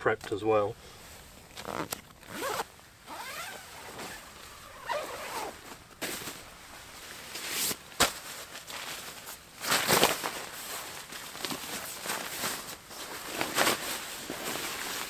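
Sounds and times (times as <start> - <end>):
tent zipper being drawn open: 1.5 - 7.8.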